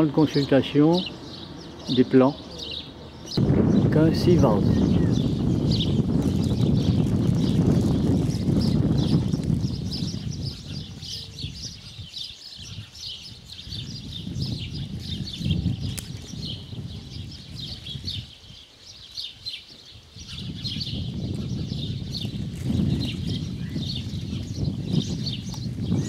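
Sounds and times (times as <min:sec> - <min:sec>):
small birds twittering: 0:00.0 - 0:26.0
low rumble: 0:02.9 - 0:09.9.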